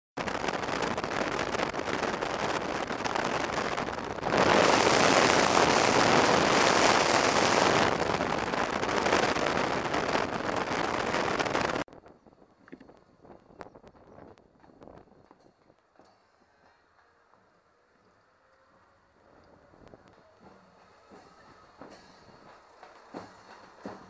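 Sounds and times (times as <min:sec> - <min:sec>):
wind rushing over microphone: 0:00.2 - 0:15.2.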